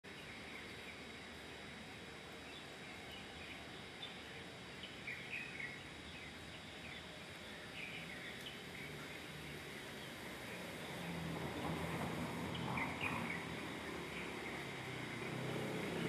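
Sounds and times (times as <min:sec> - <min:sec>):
outdoor background hiss: 0:00.0 - 0:16.0
thin high steady tone: 0:00.1 - 0:16.0.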